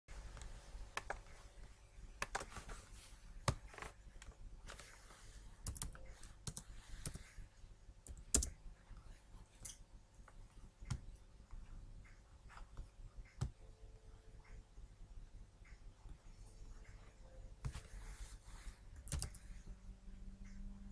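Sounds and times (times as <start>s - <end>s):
keyboard typing: 5.6s - 7.4s, 8.0s - 8.6s, 10.8s - 14.6s, 19.0s - 19.7s.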